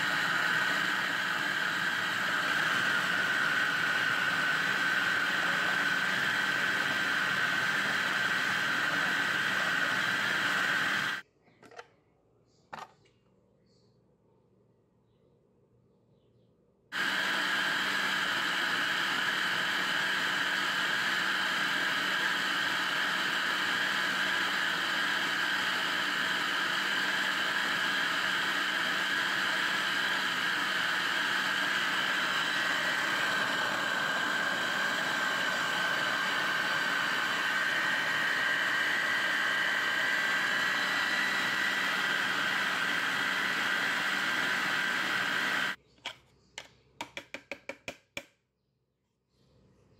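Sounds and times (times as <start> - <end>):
food processor grinding nuts: 0.0 - 11.2, 16.9 - 45.8.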